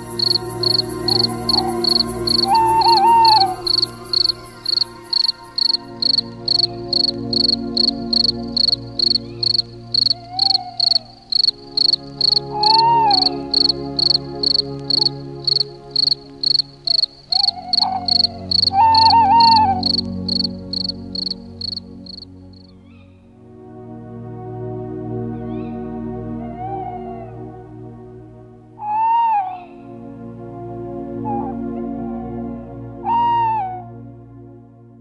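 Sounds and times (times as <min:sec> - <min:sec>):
crickets chirping: 0:00.0 - 0:22.8
short wavering calls: 0:00.0 - 0:23.1
low steady drone: 0:00.0 - 0:35.0.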